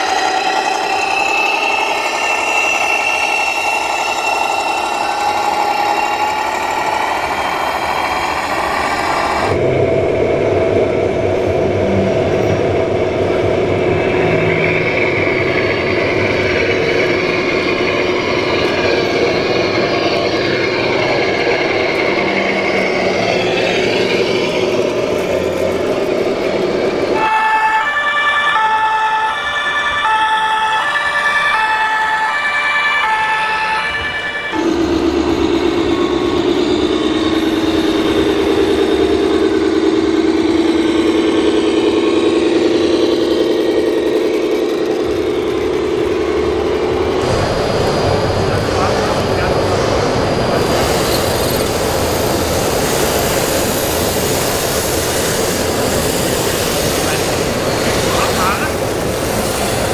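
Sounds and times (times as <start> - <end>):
two-tone siren: 0.0 - 10.8, 26.7 - 44.3
model trucks mechanical hum: 0.0 - 27.9, 34.5 - 59.9.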